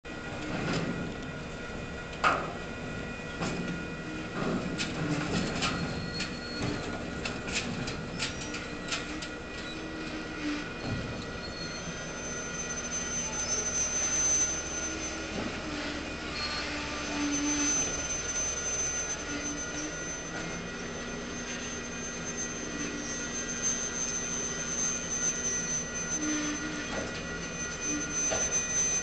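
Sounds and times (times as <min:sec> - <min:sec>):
diesel engine mechanical hum: 0:00.1 - 0:29.0
short lower hydraulic tones: 0:08.0 - 0:29.0.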